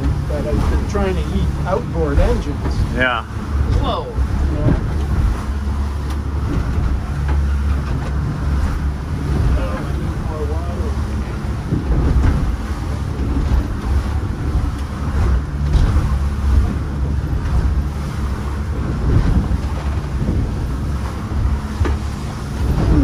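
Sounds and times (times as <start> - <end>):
boat engine drone: 0.0 - 23.0
water splashing against hull: 0.0 - 23.0
wind buffeting microphone: 0.0 - 23.0.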